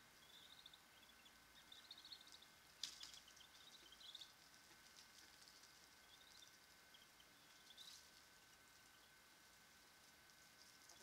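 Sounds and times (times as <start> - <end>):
thin steady high tone: 0.0 - 4.4
ducklings peeping: 0.0 - 11.0.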